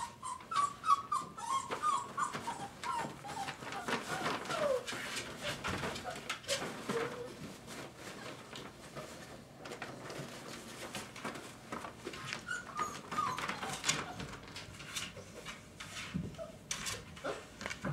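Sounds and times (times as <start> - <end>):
puppy squeaks: 0.0 - 4.8, 12.3 - 14.4
puppies whimpering: 0.0 - 7.4, 12.3 - 15.4
scuffling and small clicks: 1.7 - 17.9.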